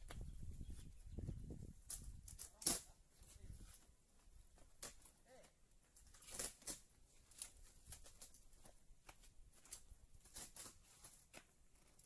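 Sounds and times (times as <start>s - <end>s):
fiberglass crackling and snapping: 1.9s - 2.9s, 4.5s - 12.0s.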